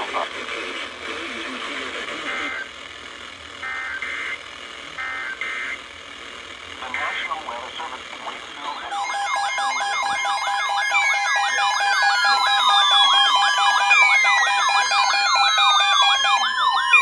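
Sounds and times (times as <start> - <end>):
steady alarm tone: 2.1 - 8.0, 8.7 - 17.0
fast warbling alarm tone: 3.6 - 4.4, 8.8 - 17.0
falling siren-like sweeps: 8.9 - 17.0.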